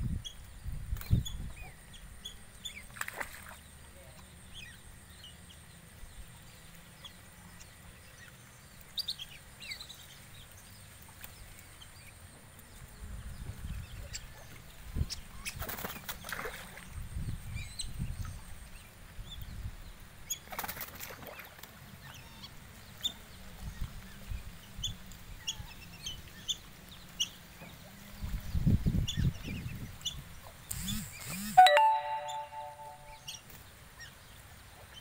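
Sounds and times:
wing flapping: 20.5s - 21.7s.

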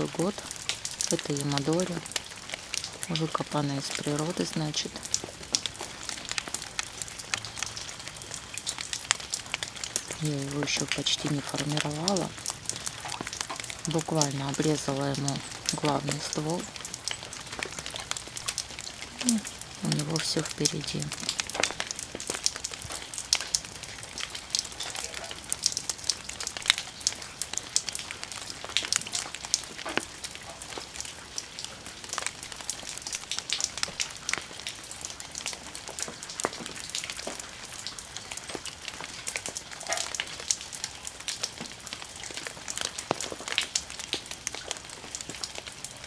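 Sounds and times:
water drops falling into pond: 0.0s - 46.0s.

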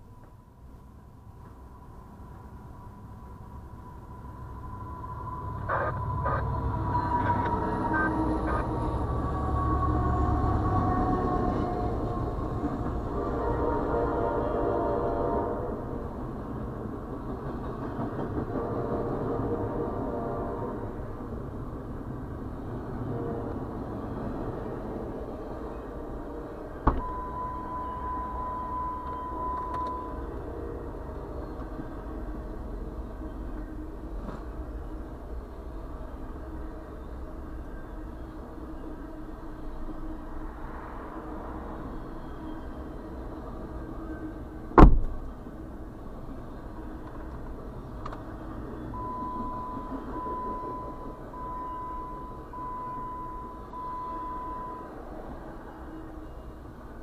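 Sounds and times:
freight train rumbling past: 0.0s - 57.0s
high beeps: 5.6s - 8.6s, 27.0s - 30.2s.

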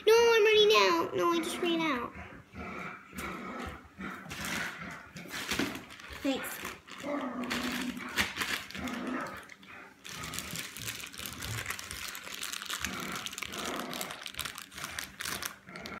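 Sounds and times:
rustling and crinkling handling noise: 4.2s - 16.0s.

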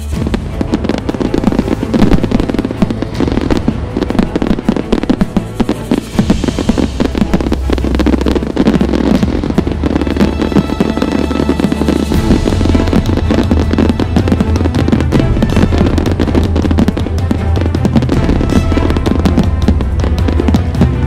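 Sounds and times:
background music with bass: 0.0s - 21.0s
fireworks bangs and crackles: 0.0s - 21.0s.

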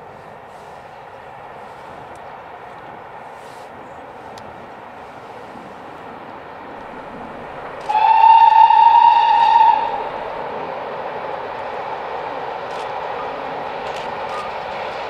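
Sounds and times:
steam locomotive running: 0.0s - 15.0s
steam whistle blast: 7.8s - 10.1s.

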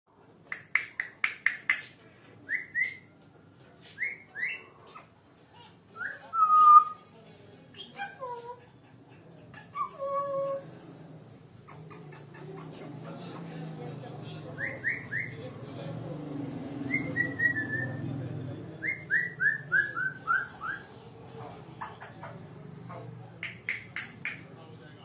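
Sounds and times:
parrot clicking notes: 0.5s - 1.9s
parrot whistling: 2.5s - 3.1s, 4.0s - 5.1s, 6.0s - 7.0s, 14.6s - 15.4s, 16.9s - 18.0s, 18.8s - 20.9s.

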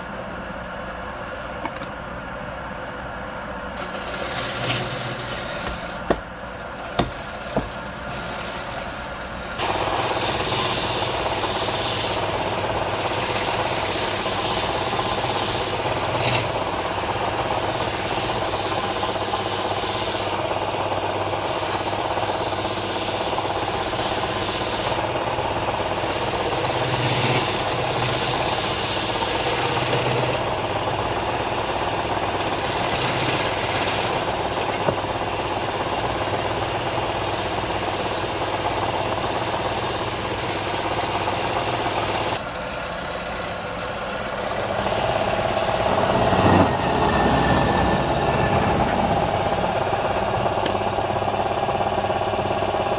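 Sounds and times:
wood lathe running: 3.7s - 52.9s
sandpaper rubbing on wood: 9.9s - 20.4s, 21.2s - 25.1s.

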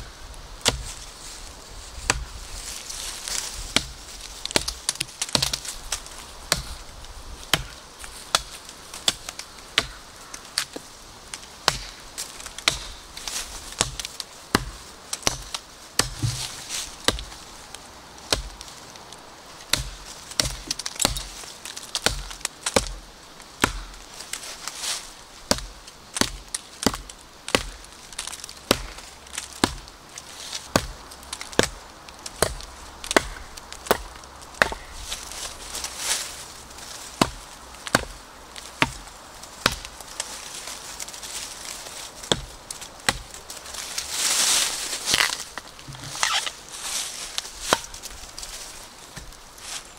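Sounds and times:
knife chopping into wood: 32.4s - 35.0s.

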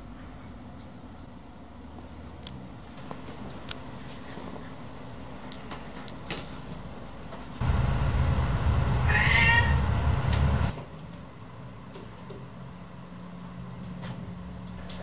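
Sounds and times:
low rumble: 7.6s - 10.7s
cat meowing: 9.1s - 9.9s.

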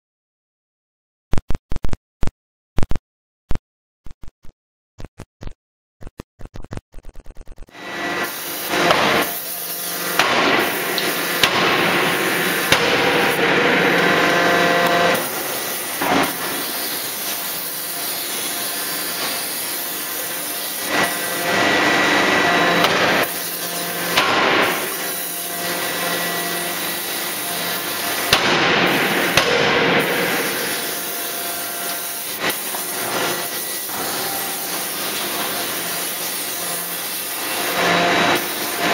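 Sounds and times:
forging hammer heavy blows: 7.8s - 16.8s, 20.9s - 26.4s, 27.2s - 31.8s.

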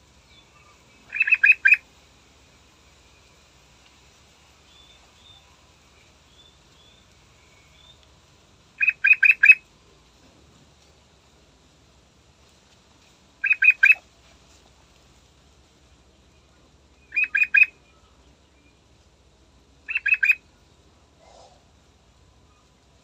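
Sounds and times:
bird singing loud notes: 0.3s - 1.8s, 8.8s - 9.6s, 13.4s - 14.0s, 17.0s - 18.7s, 19.9s - 20.4s.

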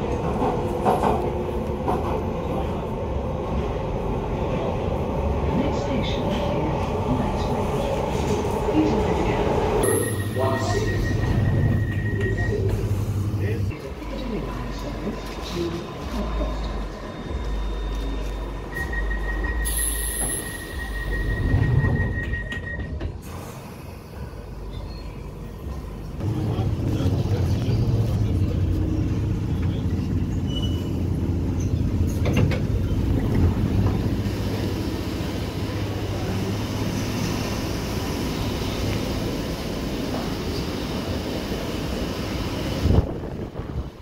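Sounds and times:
train rumble and motor hum: 0.0s - 44.0s
steady high beep: 9.8s - 12.7s, 17.4s - 22.8s.

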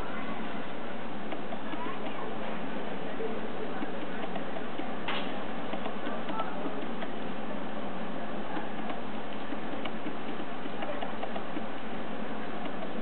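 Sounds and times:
steady hiss: 0.0s - 13.0s
antelope horns clacking: 3.4s - 7.4s, 8.4s - 13.0s.

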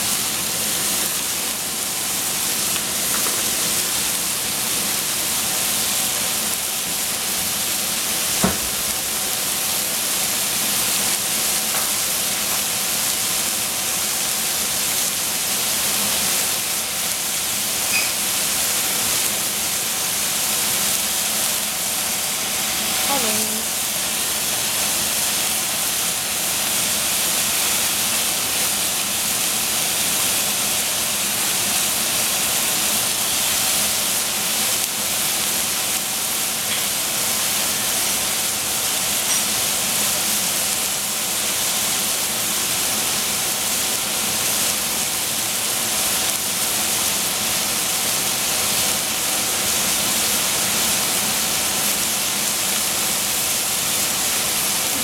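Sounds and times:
mushrooms sizzling in a pan: 0.0s - 55.0s.

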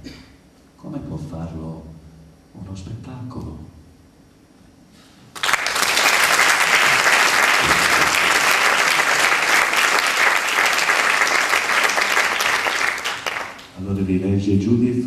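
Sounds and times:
audience applauding: 5.3s - 13.8s.

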